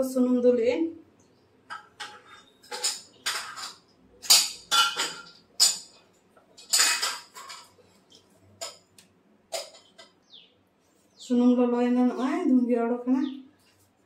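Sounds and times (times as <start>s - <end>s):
kitchenware clinking and clattering: 1.6s - 10.2s.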